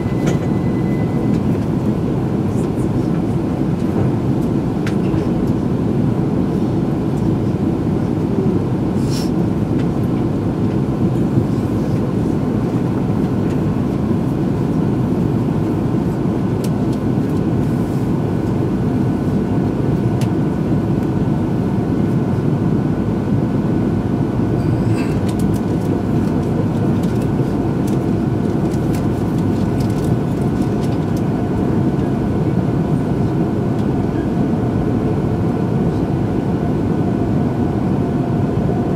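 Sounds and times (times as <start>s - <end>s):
train cabin rumble: 0.0s - 5.6s.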